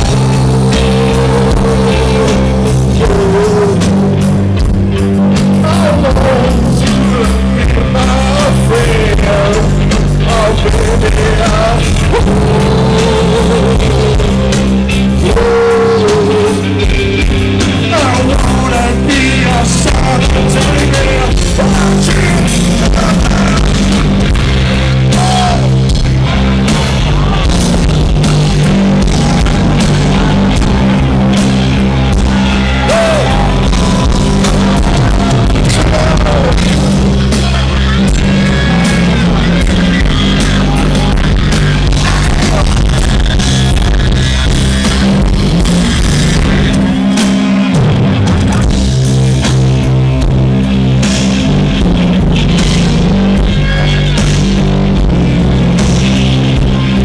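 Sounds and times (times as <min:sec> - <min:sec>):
drum kit: 0:00.0 - 0:57.0
electric guitar: 0:00.0 - 0:57.0
heavy distorted bass: 0:00.0 - 0:57.0
sliding high notes: 0:21.6 - 0:49.6.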